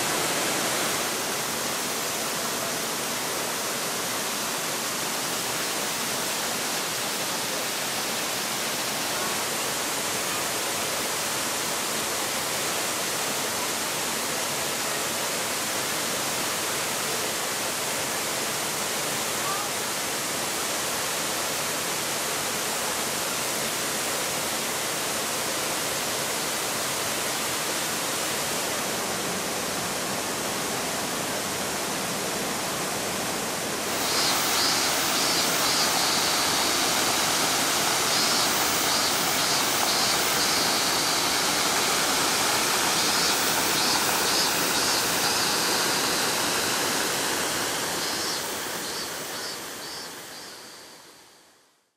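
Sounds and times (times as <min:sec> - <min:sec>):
waterfall rushing into pool: 0:00.0 - 0:51.4
faint high chirping: 0:33.9 - 0:51.4.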